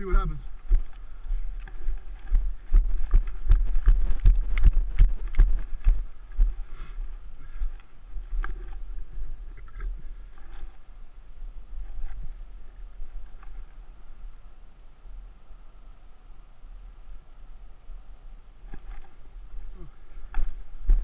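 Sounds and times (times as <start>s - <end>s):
bike rolling over rough dirt: 0.0s - 13.9s, 18.6s - 21.0s.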